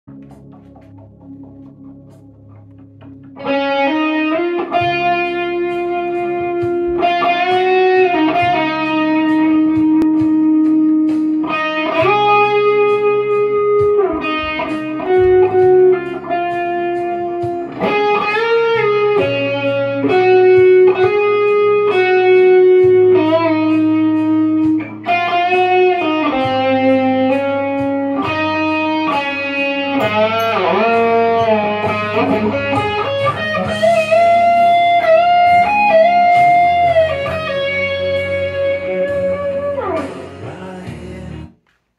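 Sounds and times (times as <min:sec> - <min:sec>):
electric guitar lead melody: 0:00.0 - 0:41.6
low held backing: 0:00.0 - 0:41.9.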